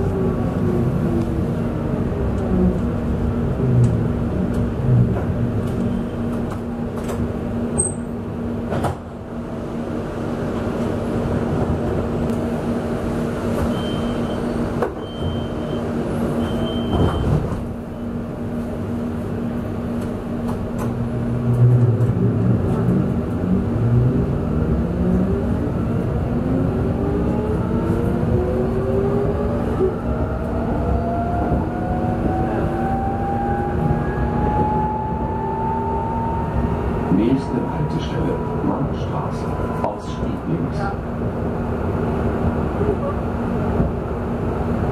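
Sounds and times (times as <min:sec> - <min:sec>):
tram running noise: 0:00.0 - 0:44.9
door warning beeps: 0:15.0 - 0:17.4.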